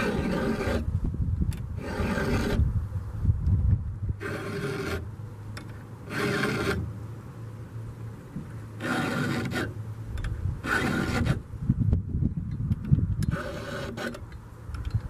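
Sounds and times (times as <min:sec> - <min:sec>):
file rasping on chain: 0:00.0 - 0:00.9, 0:01.8 - 0:02.7, 0:04.2 - 0:05.1, 0:06.0 - 0:06.9, 0:08.8 - 0:09.8, 0:10.6 - 0:11.4, 0:13.2 - 0:14.2
low steady hum: 0:00.0 - 0:15.0.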